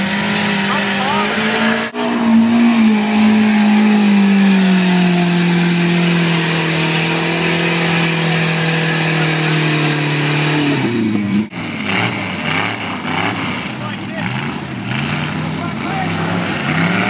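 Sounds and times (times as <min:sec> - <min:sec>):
engine at high revs: 0:00.0 - 0:17.0.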